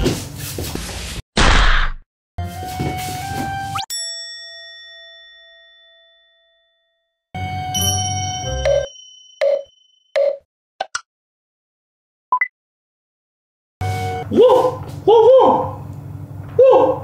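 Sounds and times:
bell-like ding: 3.9s - 7.2s, 7.8s - 10.1s.

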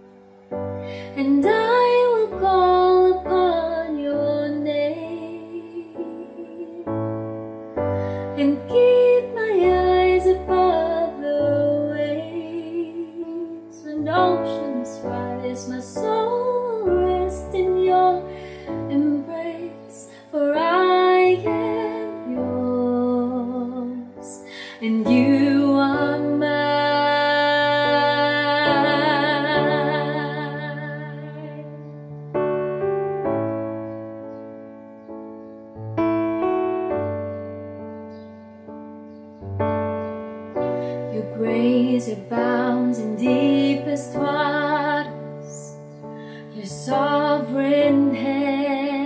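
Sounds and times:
electronic keyboard chords: 0.0s - 48.8s
woman singing ballad: 0.9s - 7.2s, 7.8s - 31.8s, 40.9s - 49.0s.

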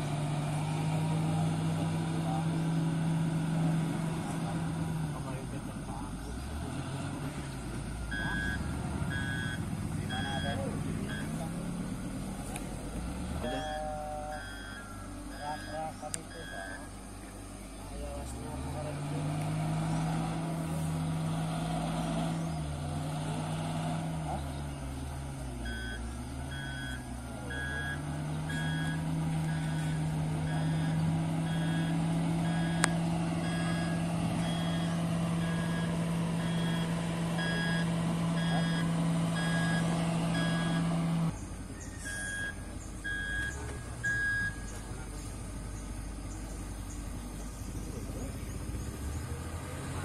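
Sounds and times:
diesel engine running: 0.0s - 50.0s
reversing alarm beeping: 8.1s - 11.7s, 13.4s - 17.0s, 25.5s - 41.0s, 41.8s - 44.8s.

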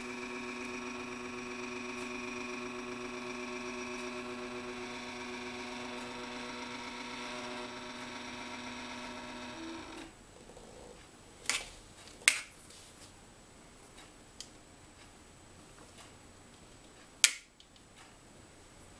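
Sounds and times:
stepper motor whining: 0.0s - 10.1s.

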